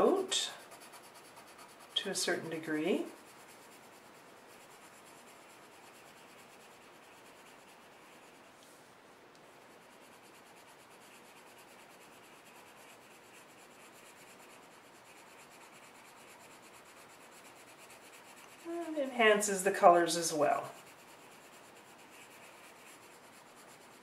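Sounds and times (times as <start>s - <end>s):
pencil scratching on paper: 0.0s - 8.5s, 9.5s - 24.0s.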